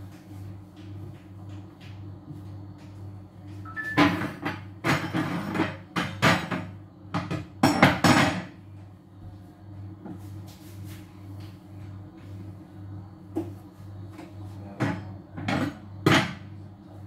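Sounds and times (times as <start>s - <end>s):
two-note beep: 3.7s - 4.1s.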